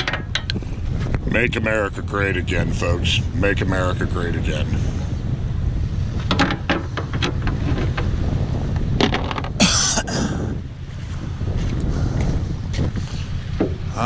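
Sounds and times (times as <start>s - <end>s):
knocks and clanks on boat: 0.0s - 1.2s, 6.2s - 10.1s, 11.5s - 13.9s
wind buffeting microphone: 0.0s - 14.0s.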